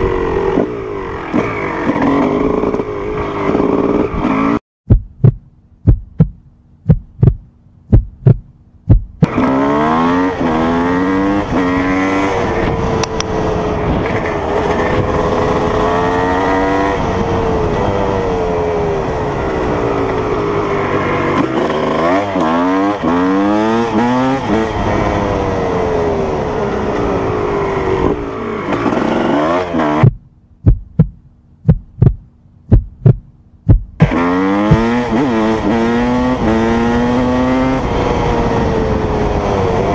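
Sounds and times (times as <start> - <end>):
dirt bike engine revving: 0.0 - 4.6, 9.2 - 30.2, 34.0 - 39.9
sharp engine pops: 30.0 - 34.9.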